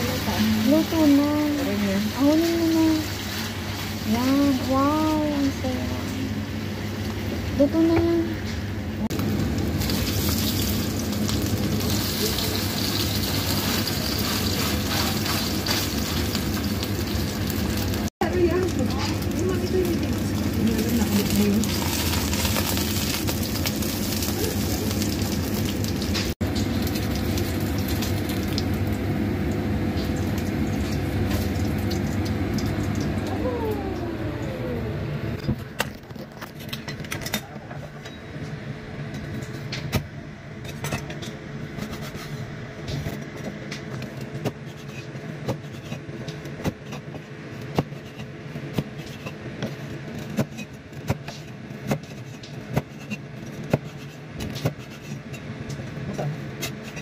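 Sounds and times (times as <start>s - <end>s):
fish patty sizzling in oil: 9.2s - 18.1s, 20.1s - 33.1s.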